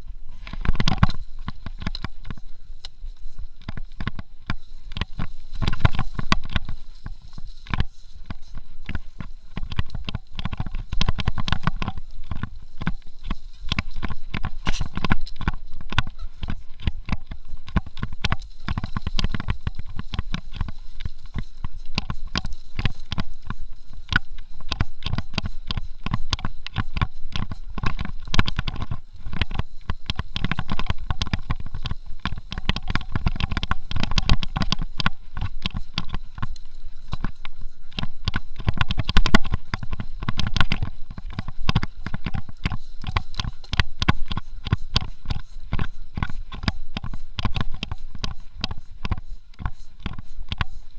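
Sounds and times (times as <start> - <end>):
bike knocking and rattling: 0.0 - 50.9.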